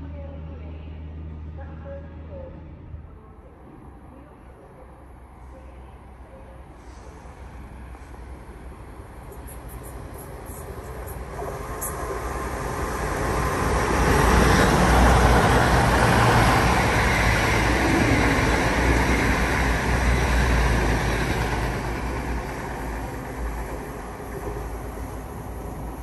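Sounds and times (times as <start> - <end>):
diesel train engines: 0.0 - 26.0
wheel-on-rail noise: 8.0 - 26.0.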